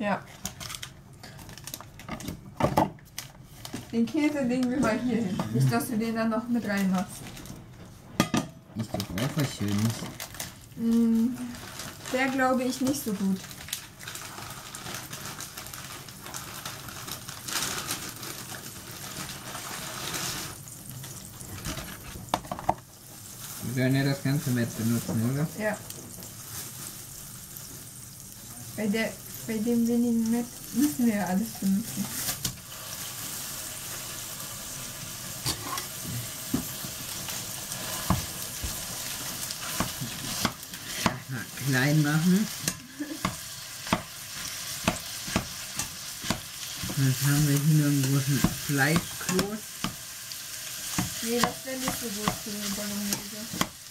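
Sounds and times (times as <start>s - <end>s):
food sizzling in a pan: 3.4s - 53.9s.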